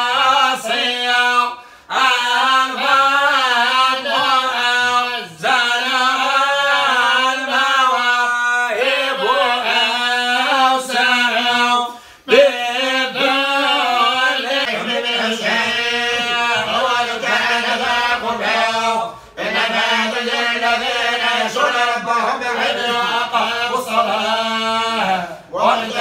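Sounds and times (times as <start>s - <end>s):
man chanting: 0.0s - 26.0s.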